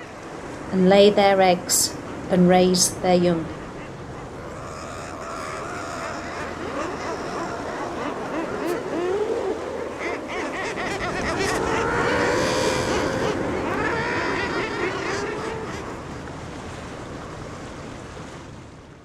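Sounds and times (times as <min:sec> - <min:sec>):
seabird colony calling: 0:00.0 - 0:16.2.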